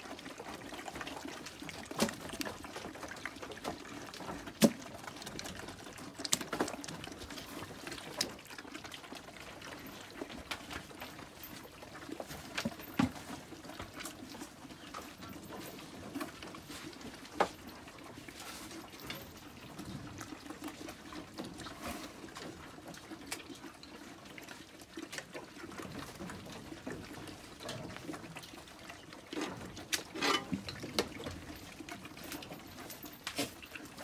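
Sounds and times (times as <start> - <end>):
goats slurping and chewing: 0.0 - 34.0.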